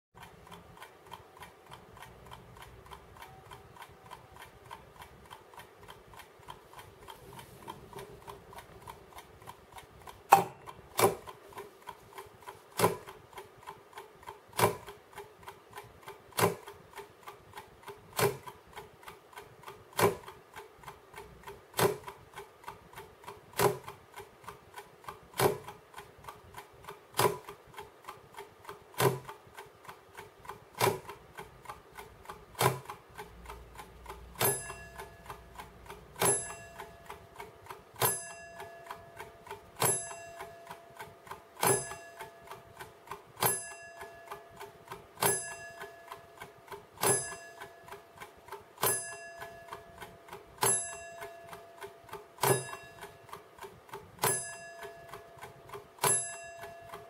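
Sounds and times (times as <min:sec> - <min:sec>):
alarm clock ticking: 0:00.2 - 0:57.0
loud ringing click: 0:34.4 - 0:57.0.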